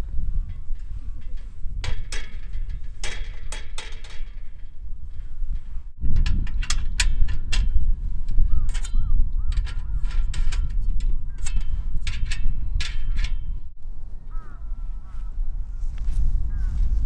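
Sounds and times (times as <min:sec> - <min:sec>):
steady low rumble: 0:00.0 - 0:17.0
metal clicks and clatter: 0:00.4 - 0:13.8.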